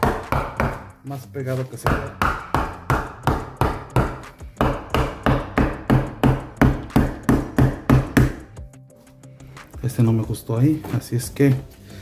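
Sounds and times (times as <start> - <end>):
hammer striking wooden block: 0.0 - 1.0, 1.8 - 8.6.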